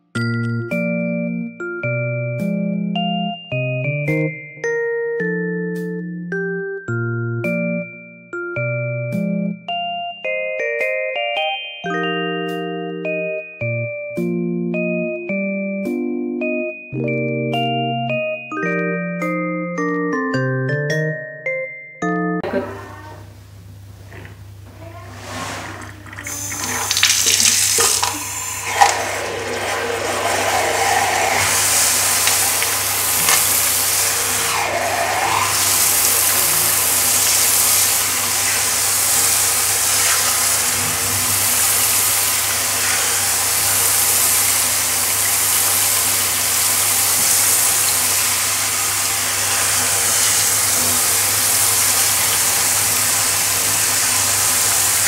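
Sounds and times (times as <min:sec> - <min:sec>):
shower spray on tiled floor: 0:24.9 - 0:55.0.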